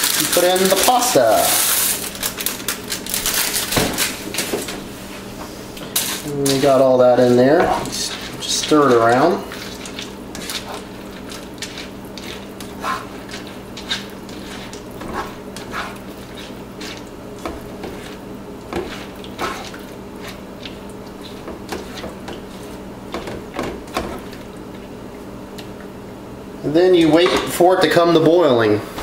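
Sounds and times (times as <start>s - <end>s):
spatula scraping frying pan: 5.9s - 24.3s.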